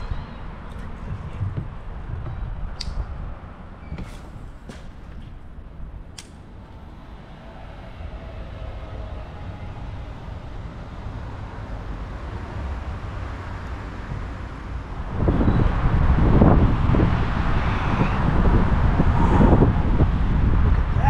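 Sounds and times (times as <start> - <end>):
wind rumbling on microphone: 0.0 - 21.0
sharp click: 6.2 - 6.4.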